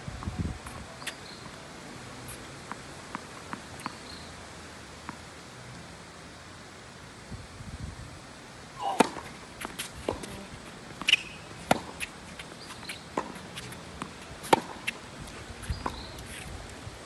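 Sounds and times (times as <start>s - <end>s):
tennis ball struck by racket: 8.8s - 15.0s.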